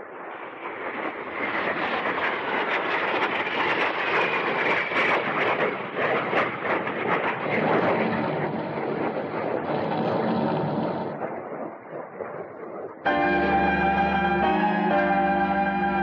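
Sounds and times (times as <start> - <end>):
fighter plane engine roar: 0.5 - 11.6, 13.1 - 16.0
faint whine: 13.1 - 16.0.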